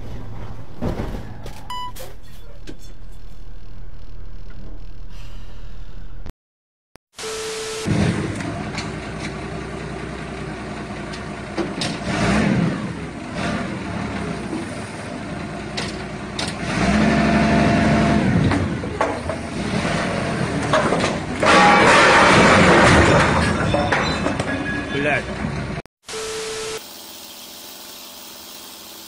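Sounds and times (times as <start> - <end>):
forklift engine revving: 7.8 - 21.4.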